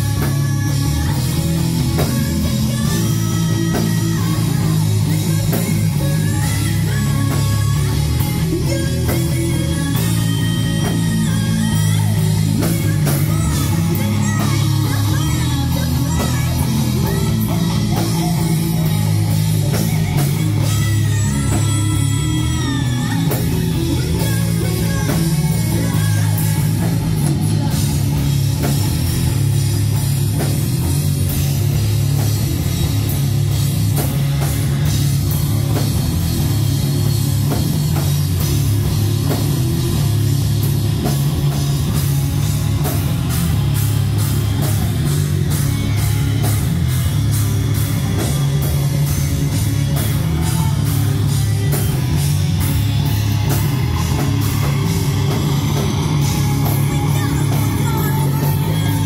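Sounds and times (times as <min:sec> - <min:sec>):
bass guitar: 0:00.0 - 0:59.0
electric guitars: 0:00.0 - 0:59.0
fast drum kit: 0:00.0 - 0:59.0.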